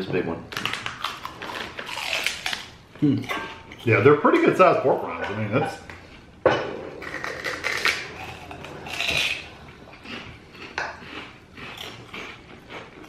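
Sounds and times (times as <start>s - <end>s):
crunchy food chewing: 0.6s - 3.3s, 7.0s - 13.0s.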